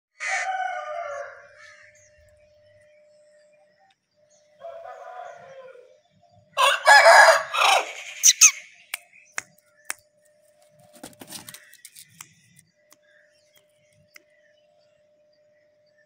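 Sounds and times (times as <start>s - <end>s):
rooster crowing: 0.2s - 2.0s, 4.6s - 8.6s.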